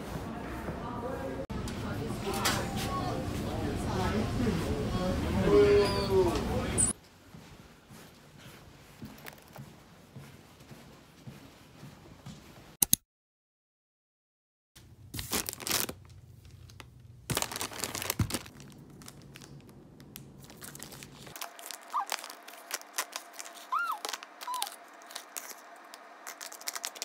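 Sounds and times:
plastic wrap crinkling and tearing: 15.1 - 27.0
plastic sachets crackling: 15.2 - 27.0.

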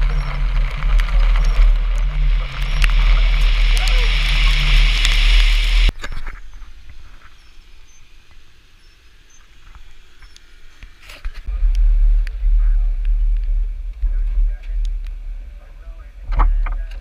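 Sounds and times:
vehicles driving on wet dirt road: 0.0 - 5.9
wind buffeting and road rumble: 0.0 - 7.6, 11.2 - 17.0.

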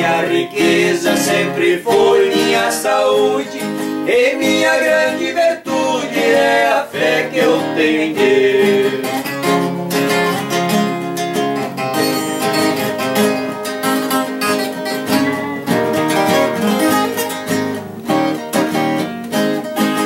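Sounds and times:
nylon-string acoustic guitar: 0.0 - 20.0
viola: 11.8 - 18.1.

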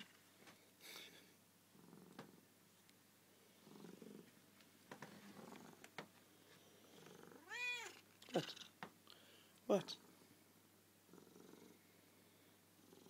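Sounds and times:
cat purring faintly: 1.7 - 2.5, 3.3 - 8.8, 9.7 - 10.4, 11.0 - 13.0
cat meowing: 7.4 - 8.0.

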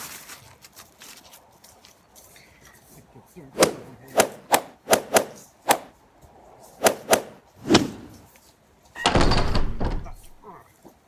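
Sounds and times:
sharp whacks and thuds: 3.6 - 5.9, 6.8 - 8.1.

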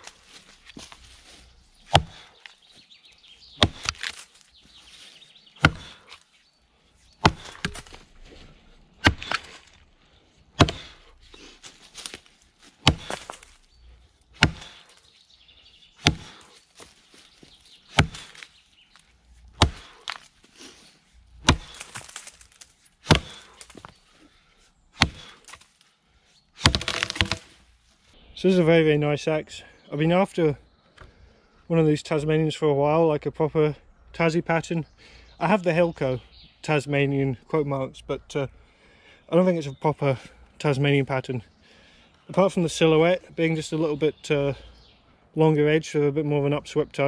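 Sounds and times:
axe chopping into log: 1.9 - 2.3, 3.6 - 4.2, 5.6 - 6.2, 7.2 - 8.0, 9.0 - 9.6, 10.6 - 11.0, 12.8 - 13.5, 14.4 - 14.8, 16.0 - 16.5, 17.9 - 18.5, 19.6 - 20.2, 21.4 - 23.9, 25.0 - 25.6, 26.6 - 27.5.

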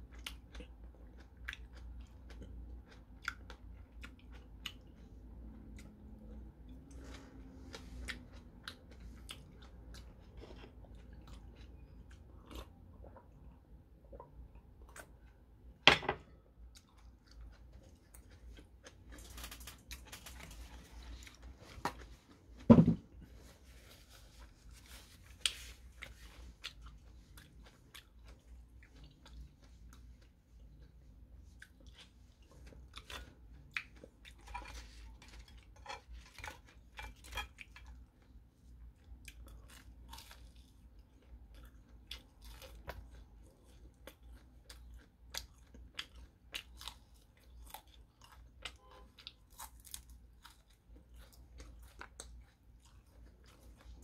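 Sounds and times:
person chewing crisp food: 0.0 - 15.6, 16.6 - 54.0.

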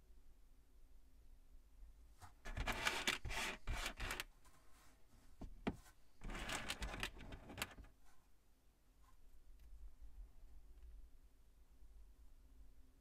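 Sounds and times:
plastic pieces clicking and rattling: 6.2 - 7.9.

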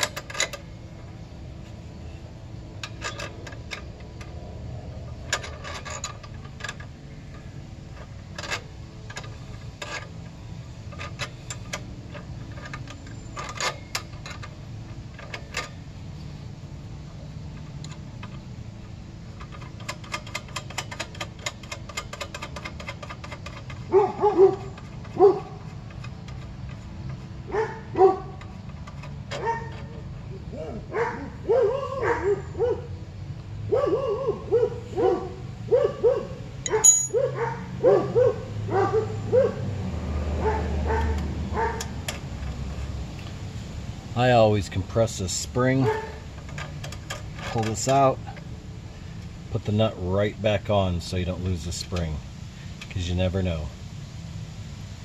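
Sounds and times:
metal wrench clicking on nut: 0.0 - 0.7, 2.8 - 15.8, 17.6 - 27.2, 36.6 - 37.2
dog yipping: 23.9 - 25.6, 27.5 - 28.4, 29.4 - 29.9, 30.6 - 33.0, 33.7 - 39.7, 40.4 - 41.8.

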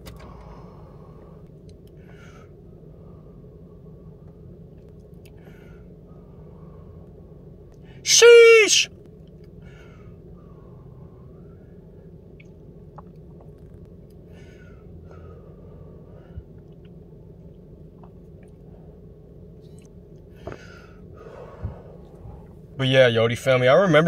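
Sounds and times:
low hum inside car: 0.0 - 24.0
breathy exhalations: 5.3 - 7.1, 20.3 - 22.5.

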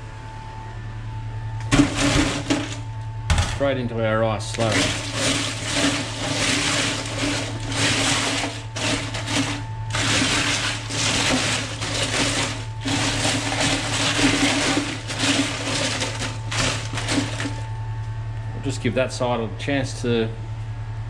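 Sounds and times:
steady low hum: 0.0 - 21.0
ice rattling and sloshing in water: 1.7 - 2.8, 4.6 - 17.7.

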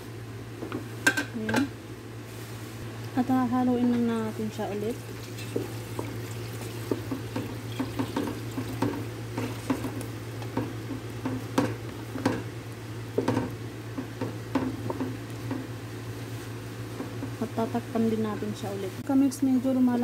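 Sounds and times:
steady low hum: 0.0 - 20.0
wooden spoon stirring porridge: 5.4 - 12.5.

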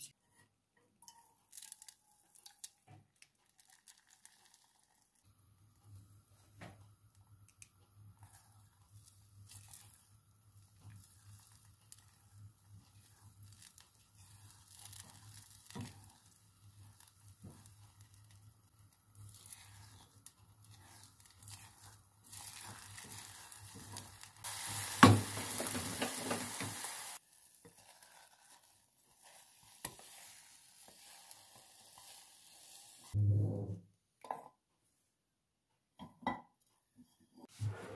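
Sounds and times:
eggs sizzling: 1.0 - 33.2
spatula scraping a pan: 8.2 - 33.1.

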